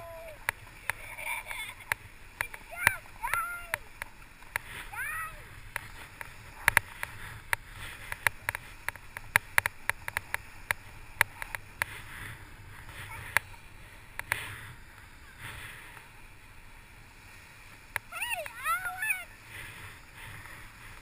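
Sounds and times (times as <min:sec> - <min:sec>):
bike tyres hissing on snow: 0:00.0 - 0:21.0
sharp irregular clicks: 0:05.7 - 0:12.0.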